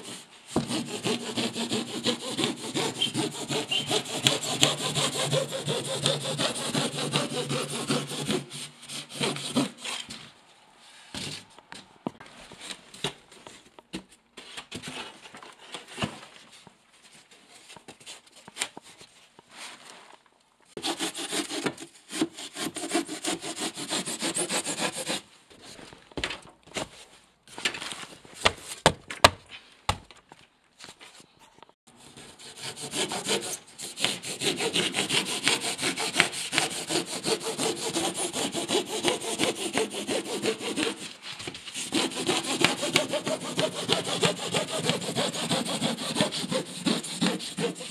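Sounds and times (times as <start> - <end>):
hand saw sawing: 0.0 - 10.2, 20.8 - 25.3, 31.9 - 47.9.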